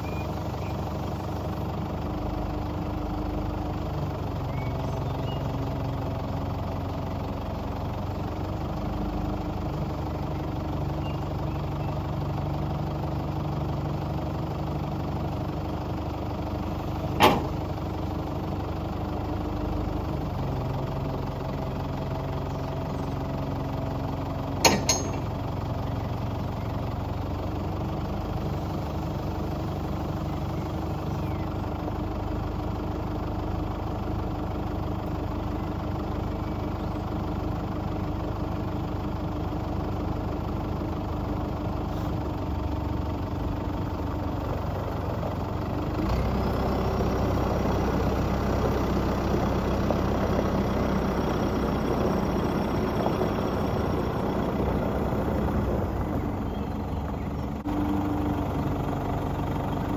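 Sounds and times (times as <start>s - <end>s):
diesel engine running: 0.0s - 59.9s
sharp clunks: 17.2s - 17.6s, 24.6s - 25.3s.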